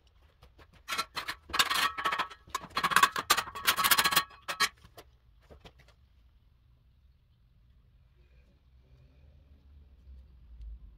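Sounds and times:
steel trowels scraping and clinking: 0.7s - 4.9s.

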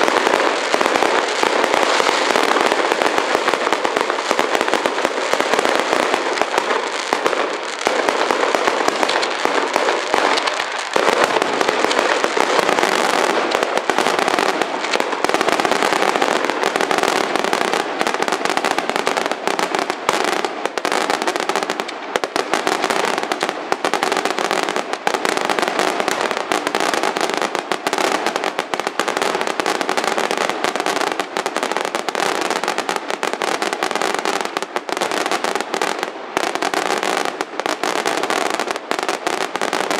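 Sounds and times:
fireworks bursts and crackling: 0.0s - 39.9s.

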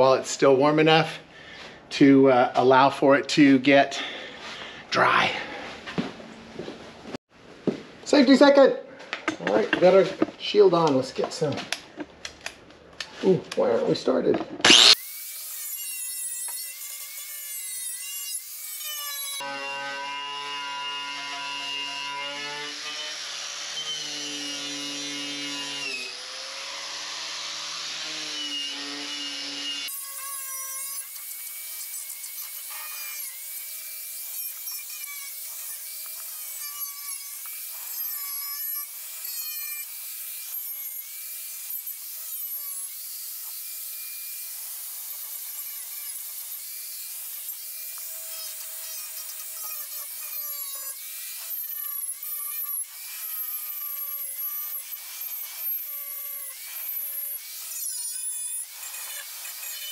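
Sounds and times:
grinder motor whining: 14.6s - 15.1s, 45.8s - 59.9s
wire wheel rasping on metal: 48.5s - 59.9s.

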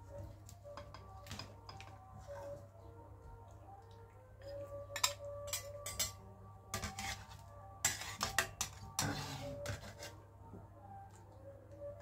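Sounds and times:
metal ladle clinking on wok: 5.0s - 6.2s
ladle scraping wok: 5.0s - 10.2s.

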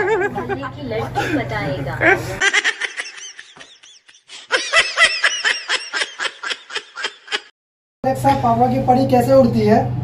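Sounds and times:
people laughing: 0.0s - 7.5s.

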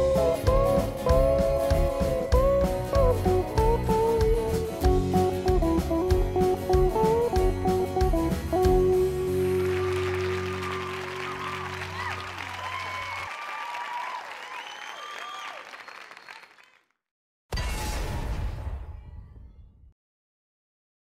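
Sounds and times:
rock band final chord ringing: 0.0s - 11.5s
audience applauding and cheering: 0.0s - 16.9s.

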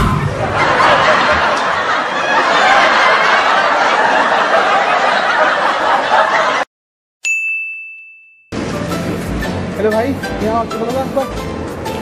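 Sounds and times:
laughter: 0.4s - 6.7s
bright ding: 7.2s - 8.6s.

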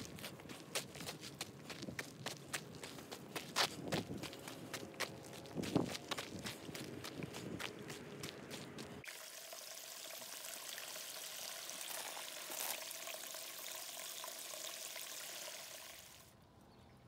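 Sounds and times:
stream water trickling: 0.0s - 16.4s
water splashes: 4.4s - 14.0s.

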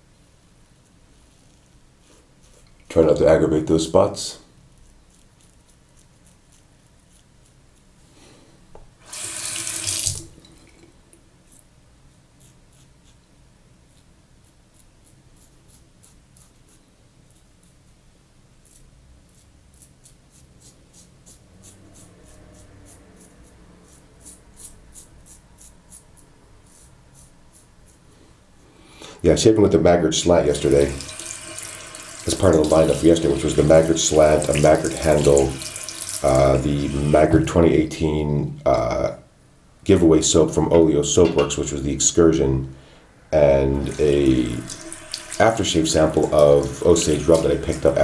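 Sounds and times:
tap running: 8.7s - 10.8s, 43.8s - 48.0s.

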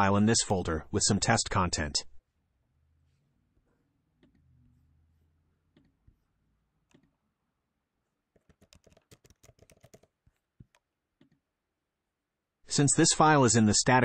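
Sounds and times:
faint keyboard typing: 8.3s - 11.4s.

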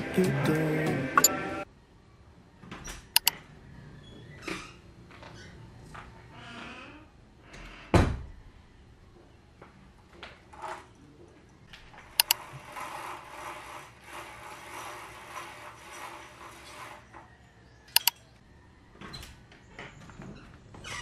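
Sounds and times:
sharp clicks: 3.2s - 3.4s, 12.2s - 12.4s, 17.9s - 18.3s
window blind mechanism rattling: 10.2s - 18.1s.

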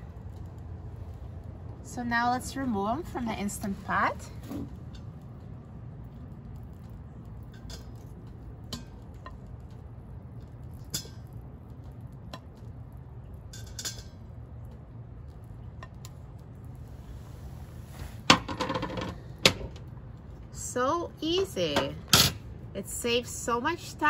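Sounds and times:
low steady rumble: 0.0s - 24.0s
metal tongs clinking on pot: 13.5s - 14.2s.

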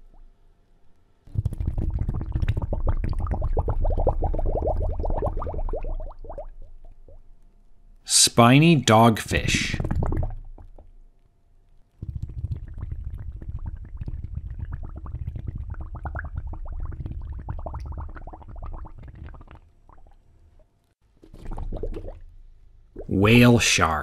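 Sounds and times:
water bubbling and gurgling: 1.3s - 7.4s, 9.3s - 11.0s, 12.0s - 20.3s, 21.3s - 22.2s, 23.0s - 23.4s.

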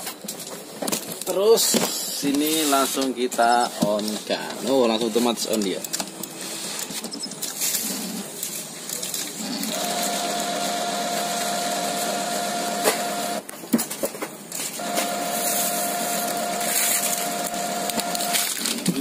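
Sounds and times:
printer motor whine: 9.6s - 13.5s, 14.8s - 18.7s
printer clicks: 9.7s - 13.5s, 14.8s - 18.5s.

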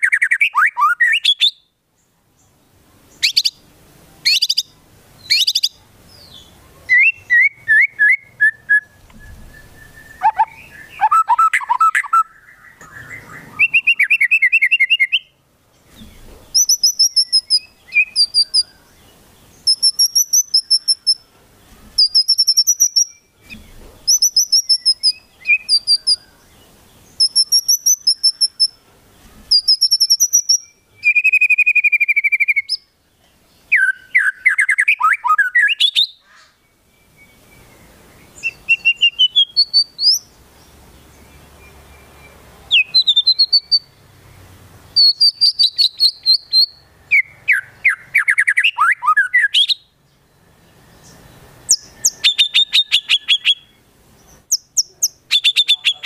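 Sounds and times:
songbird singing rapid high notes: 2.4s - 15.4s, 16.5s - 21.3s, 22.0s - 28.8s, 29.5s - 32.9s, 36.8s - 56.0s
buzzy bird trill: 3.1s - 3.6s, 4.2s - 15.3s, 16.5s - 18.9s, 19.5s - 21.3s, 22.0s - 26.4s, 27.0s - 28.8s, 29.5s - 32.8s, 41.8s - 44.0s, 45.0s - 49.8s, 51.0s - 53.8s.

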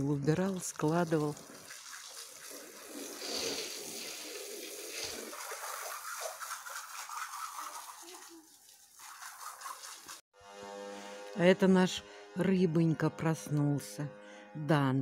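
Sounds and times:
water spraying from garden hose: 0.0s - 10.2s.

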